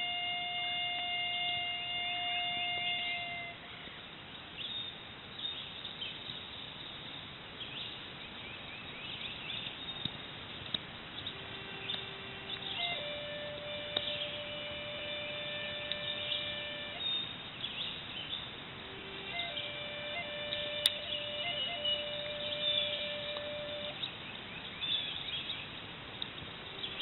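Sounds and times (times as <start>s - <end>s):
long held music note: 0.0s - 3.8s, 11.3s - 17.4s, 18.8s - 24.0s
bird chirps: 11.1s - 27.0s.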